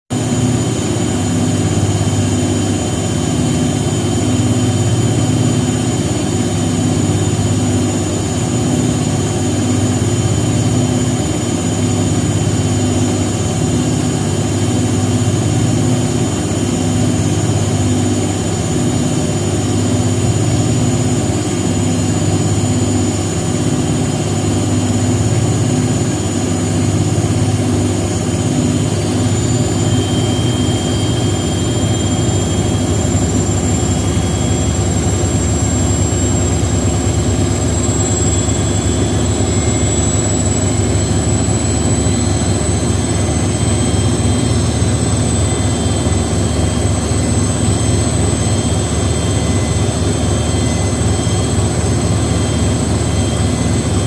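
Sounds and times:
washing machine spinning: 0.1s - 54.0s
thin high whine: 0.2s - 54.0s.

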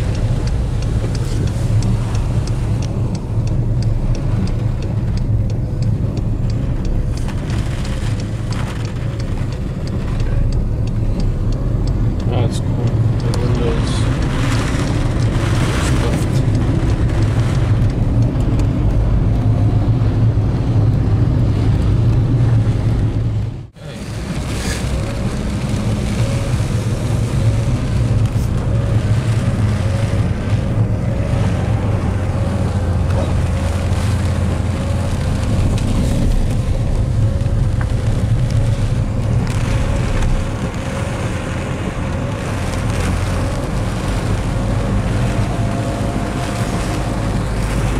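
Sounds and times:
car engine and tyres rumbling: 0.0s - 47.9s.

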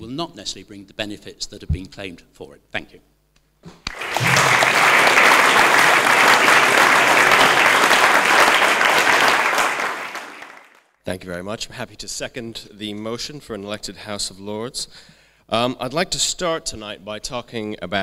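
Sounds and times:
audience applauding: 3.9s - 10.9s.

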